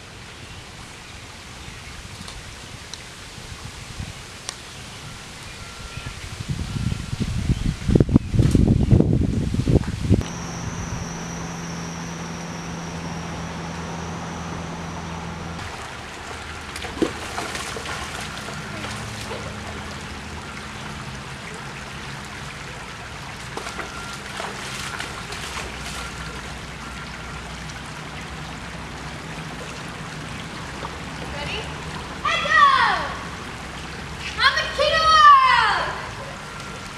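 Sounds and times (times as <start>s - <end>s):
faint hum: 10.1s - 21.9s
splashes of wading: 10.2s - 34.4s
creek trickling over rocks: 15.6s - 34.5s.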